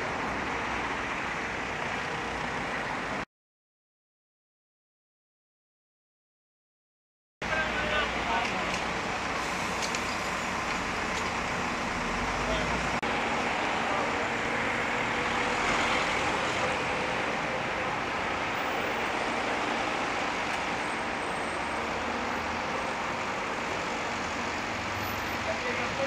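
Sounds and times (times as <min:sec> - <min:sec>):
engines humming: 0:07.4 - 0:26.0
cars passing close by: 0:07.6 - 0:26.0.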